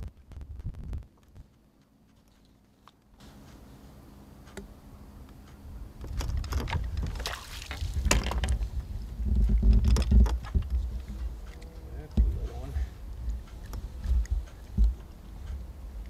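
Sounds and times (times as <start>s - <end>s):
fish splashing at surface: 7.1s - 8.2s.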